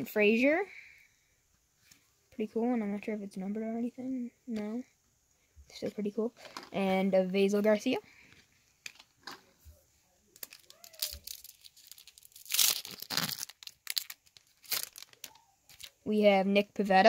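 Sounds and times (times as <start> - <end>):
cards being handled: 10.4 - 16.0
foil wrapper tearing and crinkling: 10.4 - 16.0.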